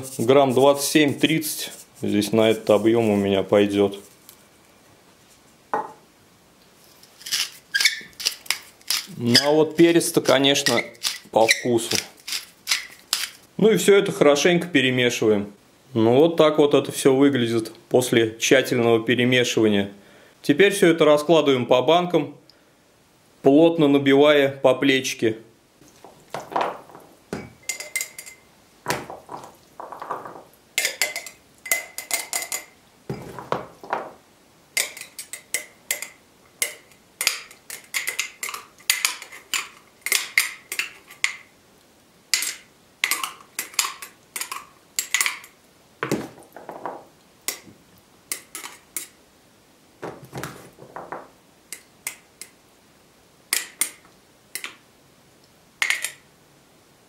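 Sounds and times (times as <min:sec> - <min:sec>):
metal spoon clinking glass jars: 0:27.4 - 0:28.5, 0:30.8 - 0:33.3, 0:34.8 - 0:41.4.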